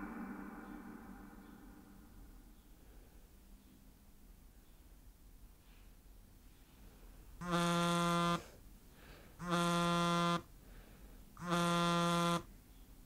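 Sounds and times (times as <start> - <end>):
alarm clock buzzer: 7.4 - 8.5, 9.4 - 10.5, 11.4 - 12.5.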